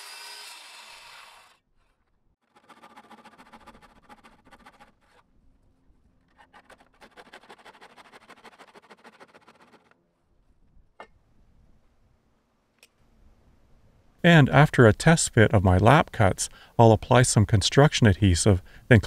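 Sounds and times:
handsaw cutting wood: 0.0 - 1.6, 2.4 - 5.2, 6.3 - 10.0.

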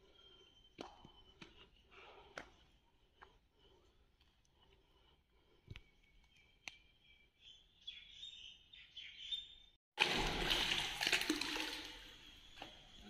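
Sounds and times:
faint bird chirps: 5.6 - 9.8
water sloshing and splashing: 10.0 - 12.8.

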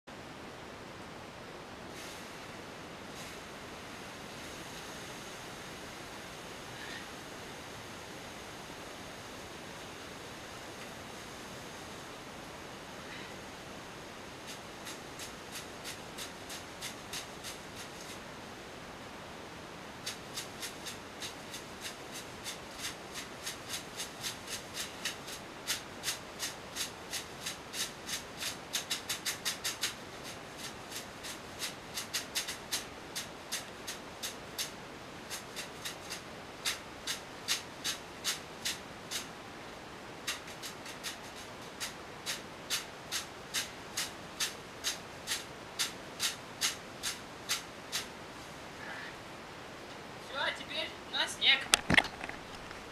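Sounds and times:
leafy bath broom slapping skin: 14.4 - 18.2, 20.0 - 34.7, 35.3 - 39.3, 40.3 - 48.1.

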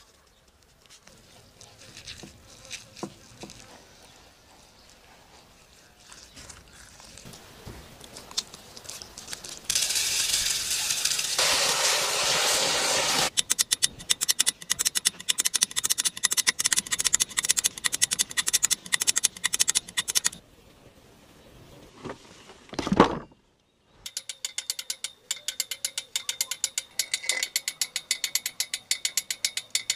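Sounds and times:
loud steady hiss: 9.7 - 13.4
fast mechanical clicking: 13.3 - 20.4.

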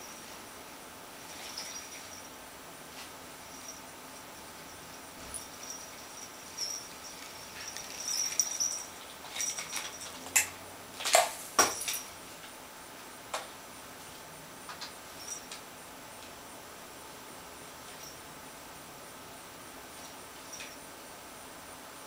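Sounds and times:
jingle bell tinkling: 1.2 - 2.4, 3.4 - 10.4, 11.6 - 12.2, 15.1 - 15.6, 20.3 - 20.9
toy tapping and rattling: 5.3 - 12.0.

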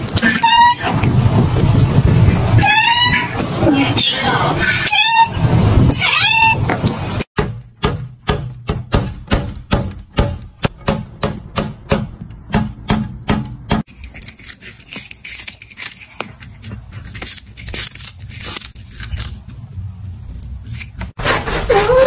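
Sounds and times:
cat crunching dried fish: 13.9 - 21.0.

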